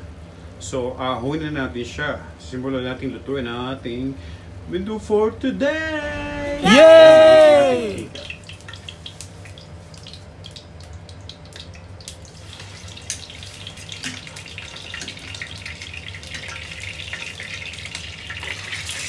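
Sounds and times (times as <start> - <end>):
hot oil popping: 8.2 - 19.0
chicken sizzling in oil: 8.3 - 19.0.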